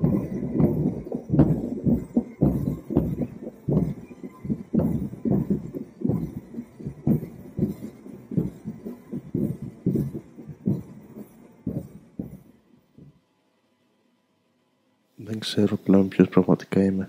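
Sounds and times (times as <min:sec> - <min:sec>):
dull low thumps: 0:00.0 - 0:13.2.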